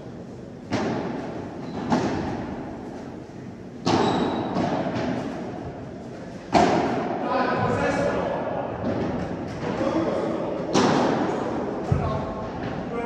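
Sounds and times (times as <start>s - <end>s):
ball hit with echo: 3.8s - 5.3s, 6.5s - 7.2s, 10.7s - 12.3s.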